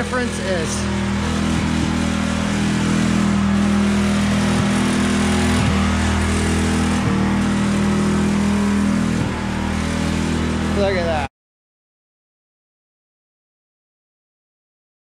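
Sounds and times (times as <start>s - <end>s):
pressure washer motor hum: 0.0s - 11.3s.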